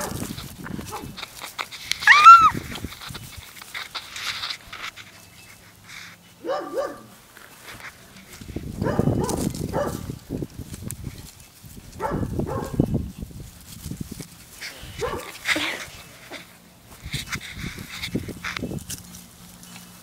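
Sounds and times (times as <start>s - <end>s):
puppy barking: 0.0s - 0.2s, 6.4s - 7.1s, 8.8s - 10.1s, 12.0s - 12.8s, 15.0s - 15.4s
puppies scuffling: 0.0s - 20.0s
puppy yelping: 2.0s - 2.6s.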